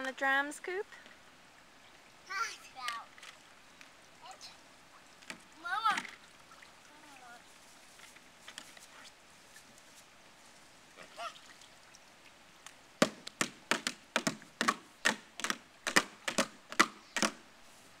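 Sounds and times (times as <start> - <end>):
child slapping pool water: 4.2 - 7.5, 10.9 - 17.4.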